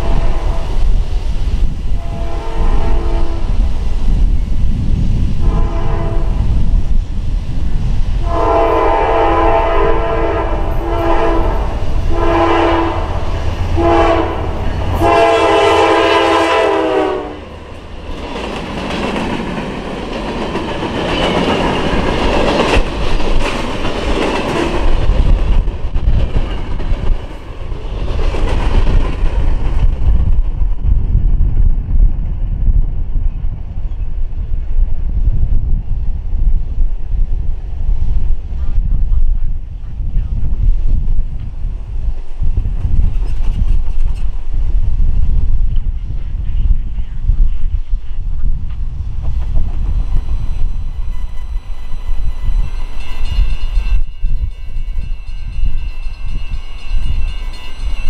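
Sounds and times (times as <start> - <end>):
locomotive horn blasts: 0.0 - 0.7, 2.0 - 3.6, 5.4 - 6.4, 8.2 - 17.5
train wheels clattering over rails: 17.6 - 30.8, 42.7 - 44.7, 48.6 - 58.0.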